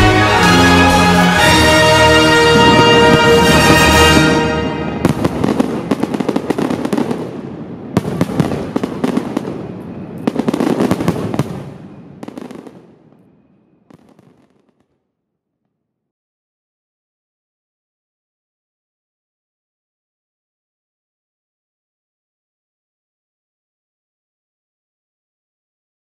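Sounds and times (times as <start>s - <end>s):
fireworks bangs and crackles: 0.0s - 15.0s.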